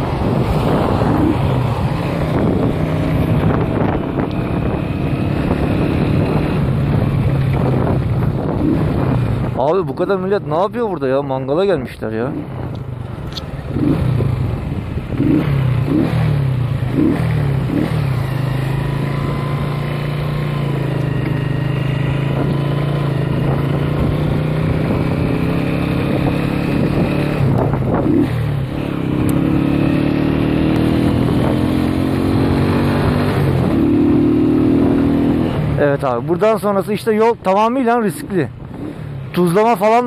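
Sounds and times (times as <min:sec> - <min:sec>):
motorcycle engine running: 0:00.0 - 0:10.3, 0:12.2 - 0:37.0.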